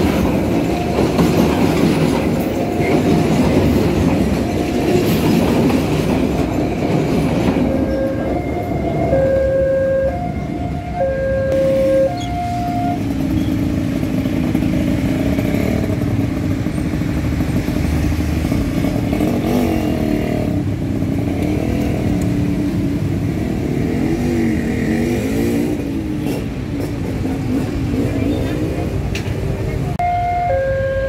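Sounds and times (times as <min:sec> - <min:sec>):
level crossing alarm tones: 0:07.6 - 0:13.2, 0:30.0 - 0:31.0
motorcycle engines revving: 0:10.0 - 0:30.0.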